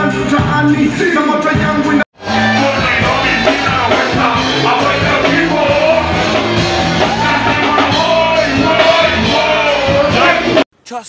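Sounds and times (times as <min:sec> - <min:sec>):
bass line: 0:00.0 - 0:10.7
live band music: 0:00.0 - 0:10.7
person singing: 0:02.2 - 0:10.7.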